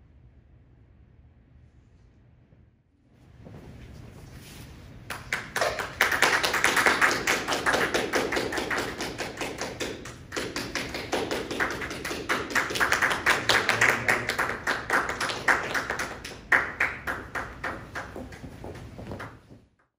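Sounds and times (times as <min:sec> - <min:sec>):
audience applauding: 0:05.1 - 0:19.4.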